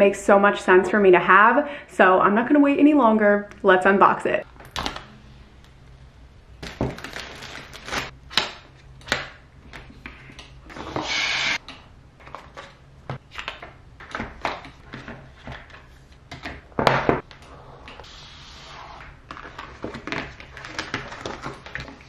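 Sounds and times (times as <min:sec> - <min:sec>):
plastic wrap crinkling: 0:06.6 - 0:08.2, 0:19.2 - 0:22.0.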